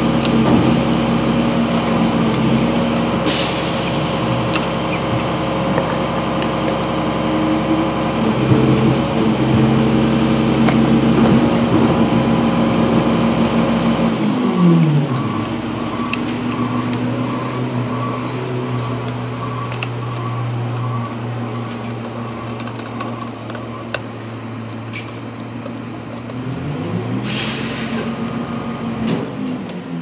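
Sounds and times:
garbage truck engine revving: 0.0s - 30.0s
plastic parts clicking: 0.1s - 7.0s, 14.2s - 26.8s, 27.7s - 29.8s.

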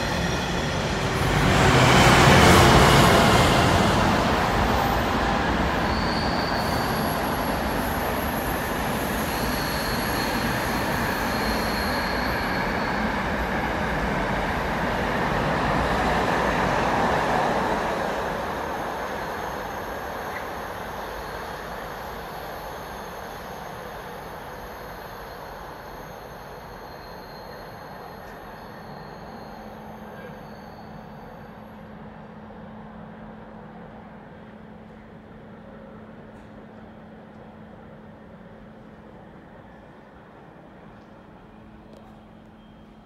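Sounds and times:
freight train wheels on rails: 0.0s - 43.0s
faint high whine: 18.6s - 32.6s.

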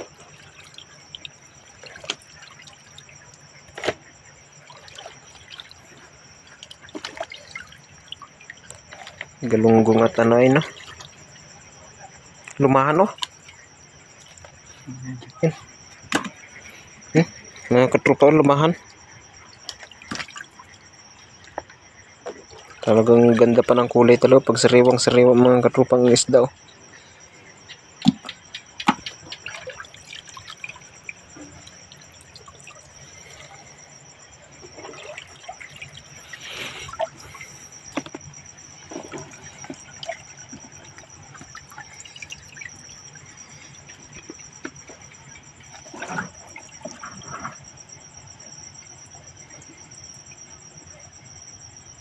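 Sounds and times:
wet fish slapping: 0.0s - 4.1s, 4.7s - 9.5s, 19.6s - 20.6s, 27.9s - 32.8s
insects chirring: 0.0s - 52.0s
water dripping and trickling: 0.0s - 52.0s.

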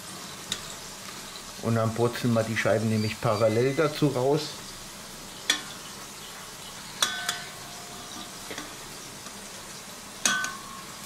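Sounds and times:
food sizzling: 0.0s - 11.0s
tongs knocking metal bowl: 7.0s - 8.8s, 10.2s - 10.8s.

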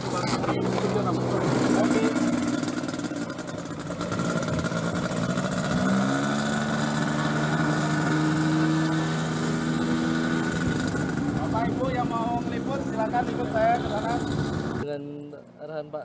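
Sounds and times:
propeller engine running: 0.0s - 14.8s.

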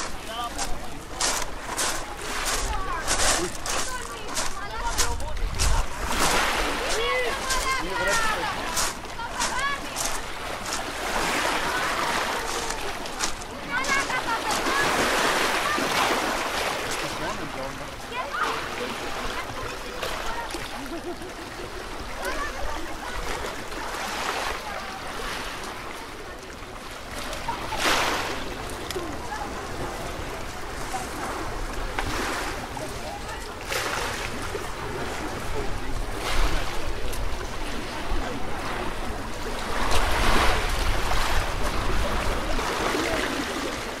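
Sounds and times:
sea lapping on pebbles: 0.0s - 21.0s, 27.0s - 44.0s
people chattering: 0.0s - 44.0s
waves washing on shingle: 0.0s - 44.0s
wind rumble on microphone: 5.0s - 6.3s.

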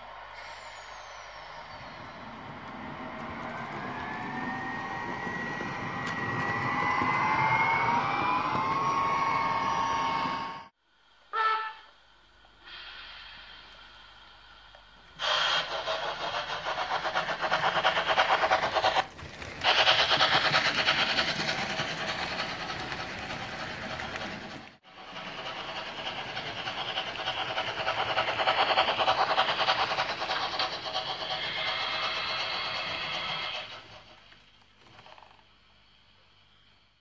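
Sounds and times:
rhythmic steam hissing: 0.0s - 37.0s
wheels rattling on track: 1.6s - 10.4s, 15.2s - 35.4s.

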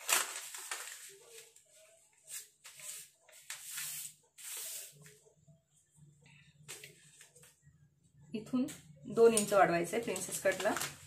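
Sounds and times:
paper rustling: 0.0s - 5.2s, 10.0s - 11.0s.

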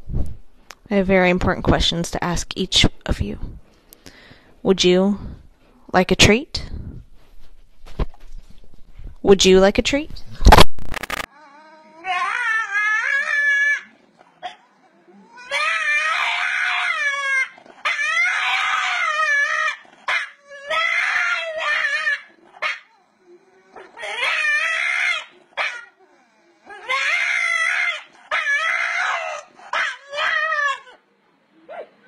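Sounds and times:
dog howling: 11.3s - 31.0s.

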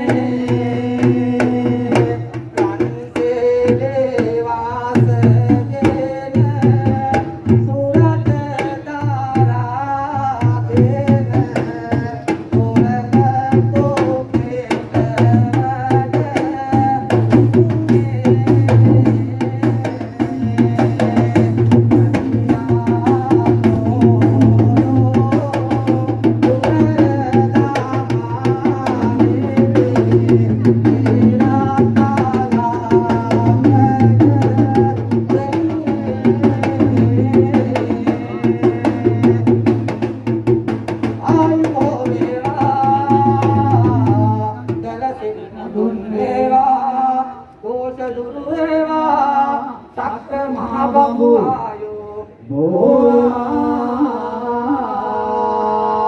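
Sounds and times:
fast dense drumming: 0.0s - 44.9s
voice chanting: 17.9s - 39.7s.

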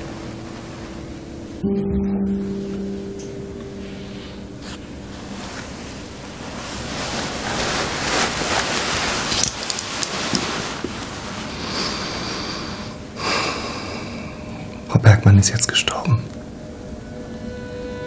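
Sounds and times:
steady rushing noise: 3.8s - 13.2s.

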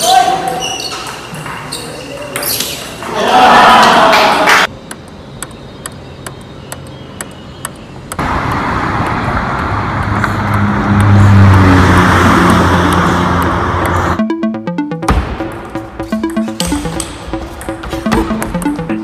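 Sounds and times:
road traffic noise: 7.6s - 14.2s.

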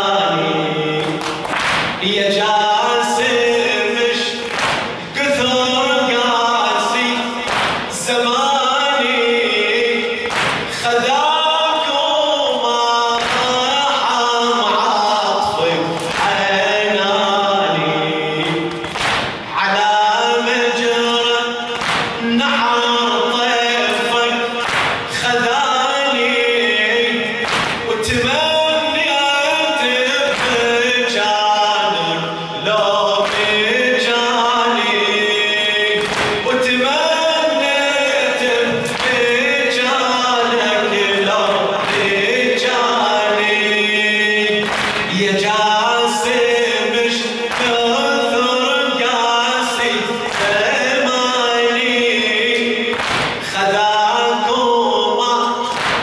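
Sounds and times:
crowd chanting chorus: 0.0s - 56.0s
man chanting into a microphone: 0.0s - 56.0s
sharp slaps: 1.0s - 2.1s, 4.4s - 5.1s, 7.4s - 8.1s, 10.2s - 10.9s, 13.2s - 13.7s, 16.0s - 16.4s, 18.4s - 19.5s, 21.8s - 22.3s, 24.6s - 25.3s, 27.4s - 28.2s, 30.2s - 30.8s, 33.2s - 33.6s, 36.0s - 36.5s, 38.9s - 39.3s, 41.8s - 42.2s, 44.6s - 45.2s, 47.5s - 47.8s, 50.3s - 50.7s, 52.9s - 53.6s, 55.7s - 56.0s.

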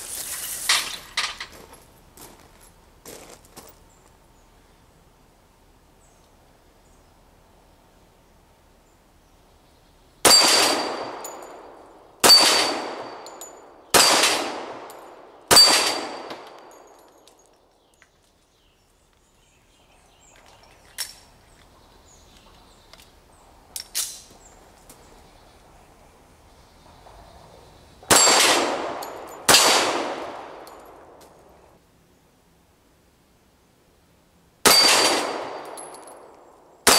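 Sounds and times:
pistol shots: 10.2s - 17.0s, 28.1s - 31.2s, 34.6s - 36.9s
bullets clanging on steel plate: 12.2s - 17.5s.

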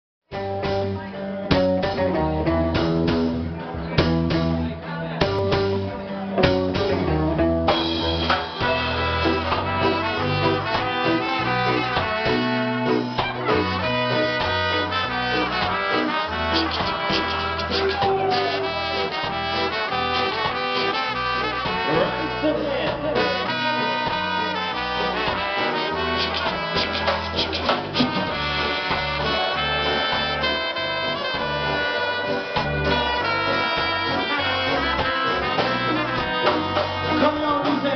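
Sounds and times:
bass: 0.3s - 37.9s
electric guitar: 0.3s - 37.9s
keyboard: 0.3s - 37.9s
horn section: 7.7s - 37.9s.

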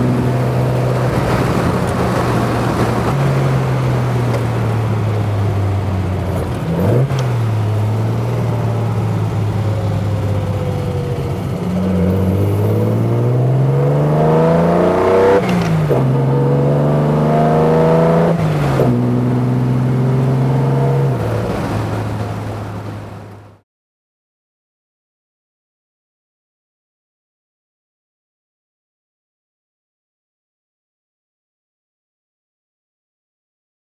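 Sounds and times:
car engine accelerating: 0.0s - 23.6s.

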